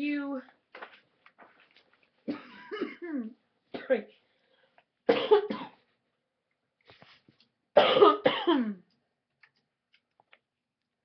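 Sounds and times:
person coughing: 0:02.3 - 0:04.0, 0:05.1 - 0:05.8, 0:07.8 - 0:08.8.

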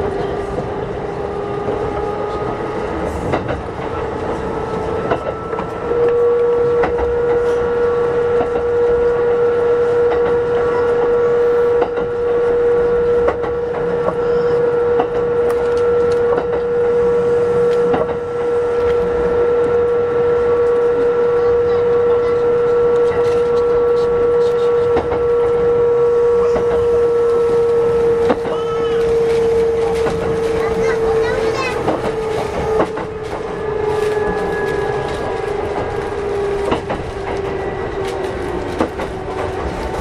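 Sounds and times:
electric train whine: 0:00.0 - 0:40.0
train rumble: 0:00.0 - 0:40.0
wheels clicking on rails: 0:26.4 - 0:40.0.

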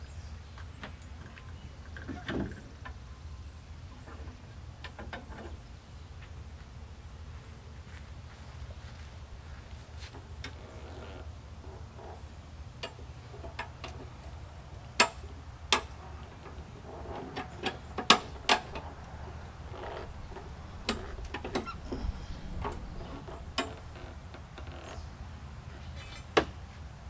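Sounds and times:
low background rumble: 0:13.9 - 0:25.9
metal clicks and clanks: 0:15.0 - 0:24.7.

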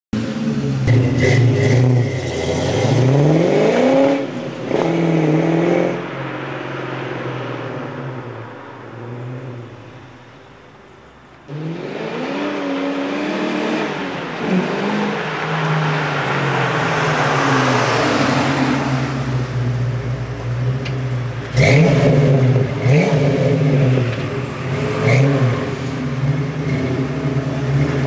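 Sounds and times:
car engine accelerating and revving: 0:00.2 - 0:28.0.

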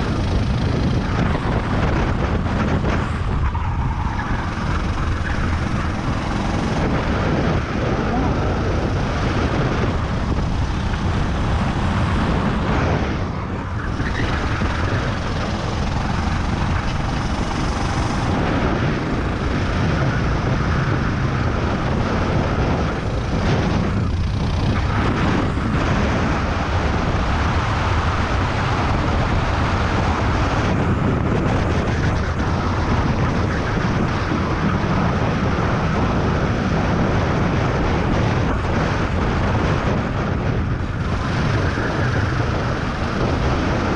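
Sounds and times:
go-kart engine running hard: 0:00.0 - 0:43.9
wind noise on microphone: 0:00.0 - 0:43.9.

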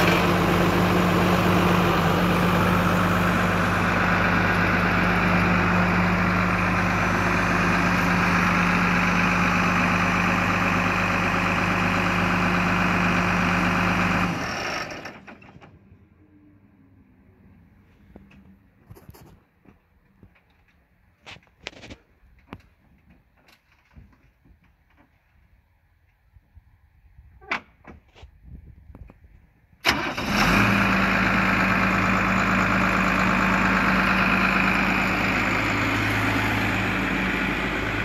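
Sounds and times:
diesel tractor engine idling: 0:00.0 - 0:18.8, 0:29.8 - 0:38.0.

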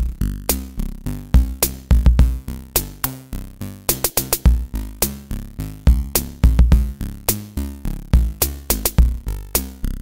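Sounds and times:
drum-machine beat: 0:00.0 - 0:00.8, 0:01.4 - 0:03.2, 0:03.9 - 0:07.6, 0:08.2 - 0:09.8
deep bass notes: 0:00.0 - 0:10.0
electronic music: 0:00.0 - 0:10.0.

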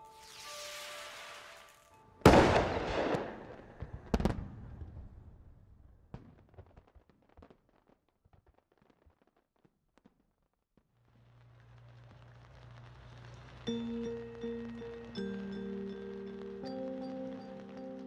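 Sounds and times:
firework crackling and pops: 0:00.0 - 0:05.2, 0:06.0 - 0:18.0
firework bangs: 0:00.1 - 0:05.2, 0:10.8 - 0:15.4.

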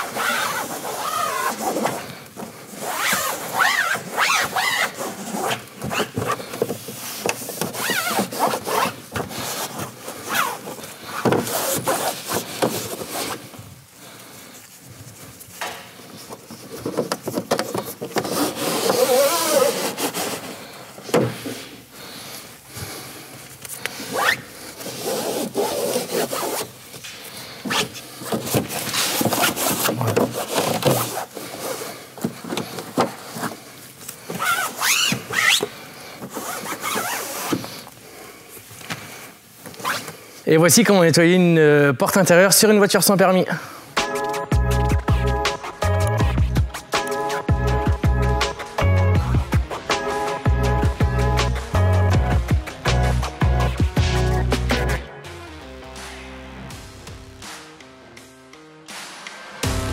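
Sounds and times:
cloth wiping plastic panel: 0:00.0 - 0:13.6, 0:14.8 - 0:21.7, 0:27.7 - 0:33.7.

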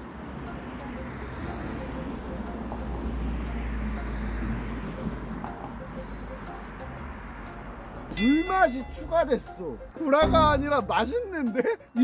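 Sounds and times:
person slurping noodles: 0:00.9 - 0:02.0.

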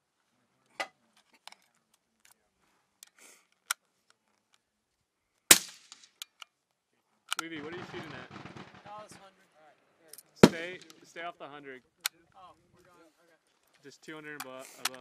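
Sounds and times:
metal clicks of cartridges: 0:01.2 - 0:02.4, 0:03.0 - 0:04.7, 0:05.3 - 0:07.5, 0:14.4 - 0:15.0
loud sharp crack: 0:05.5 - 0:06.2, 0:07.5 - 0:09.3, 0:10.4 - 0:11.0.

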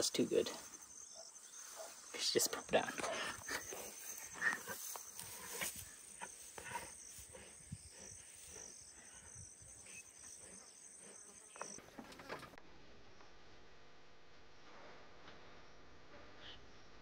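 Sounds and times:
insects trilling: 0:00.0 - 0:12.6.

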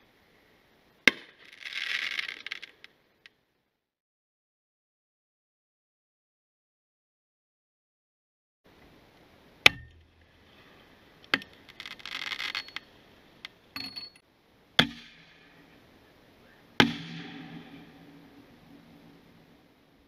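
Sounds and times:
firework crackling: 0:01.1 - 0:03.0, 0:11.5 - 0:12.7.

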